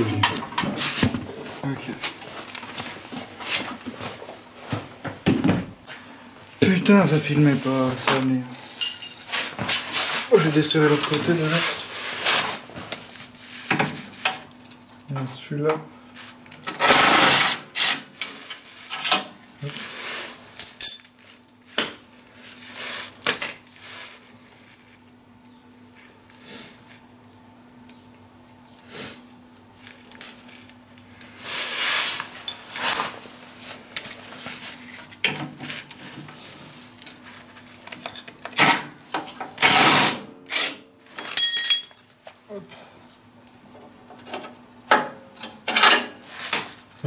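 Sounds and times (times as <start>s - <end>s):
power tool whirring in bursts: 16.8s - 17.9s.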